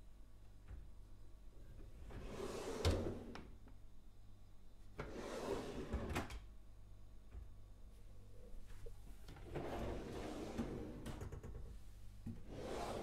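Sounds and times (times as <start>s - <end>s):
drawer sliding on runners: 2.1s - 3.4s, 5.0s - 6.3s, 9.4s - 11.1s, 12.3s - 13.0s.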